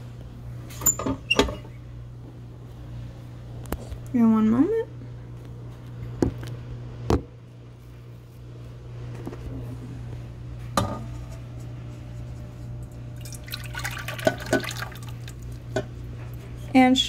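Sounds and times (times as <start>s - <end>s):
steady low hum: 0.0s - 17.0s
liquid pouring and dripping: 13.2s - 15.8s.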